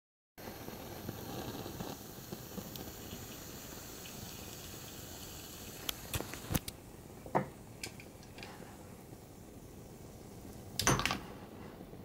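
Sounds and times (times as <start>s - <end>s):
sharp pops and clicks: 0.4s - 4.7s, 5.7s - 6.8s
flames hissing and crackling: 0.4s - 12.0s.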